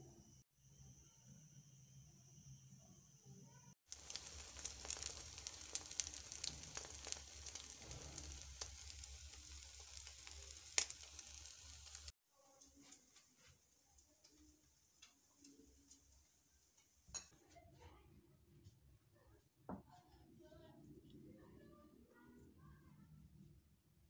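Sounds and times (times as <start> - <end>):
eggs sizzling in a pan: 3.8 - 17.3.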